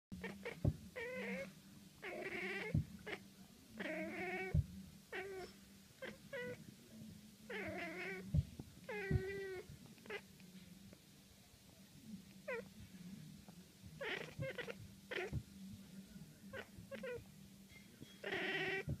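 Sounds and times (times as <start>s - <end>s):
cat chirping and warbling: 0.2s - 3.2s, 3.8s - 6.6s, 7.5s - 8.3s, 8.9s - 10.2s, 14.0s - 15.4s, 16.5s - 17.2s, 18.2s - 19.0s.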